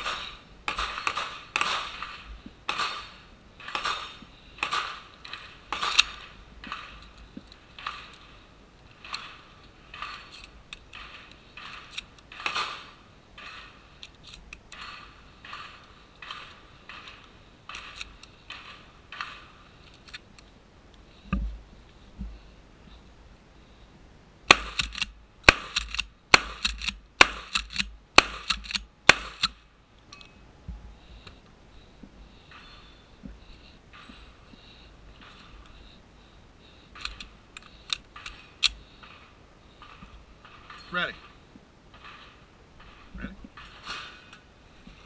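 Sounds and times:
shotgun action clacking: 0.0 - 7.0, 24.5 - 29.6
shotgun shots: 0.0 - 7.0, 10.9 - 13.8, 24.5 - 29.6.

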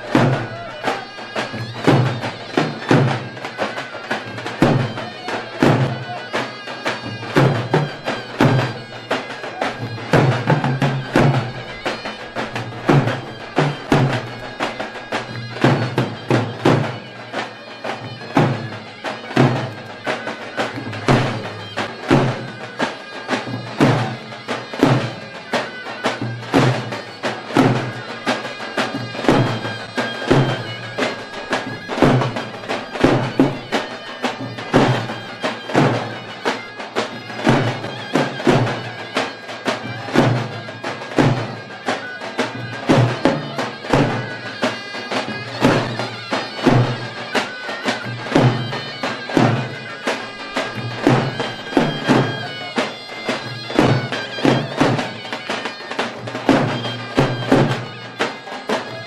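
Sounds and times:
big drum beats: 0.0 - 59.0
nasal reed pipe melody: 0.0 - 59.0.

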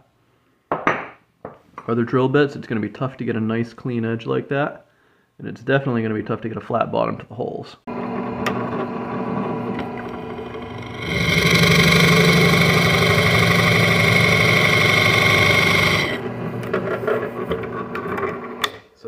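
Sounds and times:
drill press motor hum: 7.9 - 16.8
drill bit whining into wood: 8.0 - 16.7.

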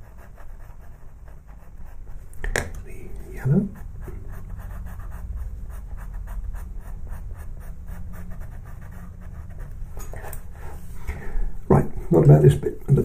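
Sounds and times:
pencil scratching on paper: 0.0 - 2.3, 3.0 - 10.6.

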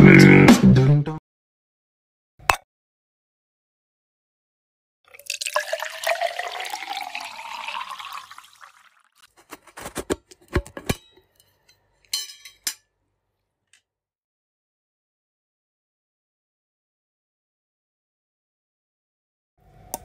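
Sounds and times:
milk pouring into metal mug: 5.1 - 9.3.

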